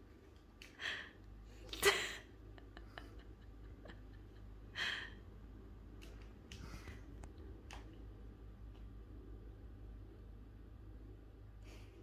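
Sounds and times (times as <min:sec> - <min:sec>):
steady low hum: 0:00.0 - 0:12.0
faint irregular clicks: 0:05.9 - 0:09.0.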